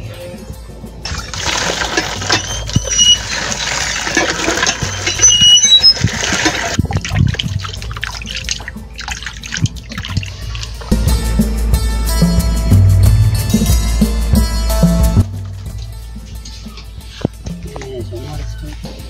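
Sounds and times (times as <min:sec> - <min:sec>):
hands splashing in water: 0:01.1 - 0:10.9
water pouring into plastic basin: 0:01.1 - 0:10.9.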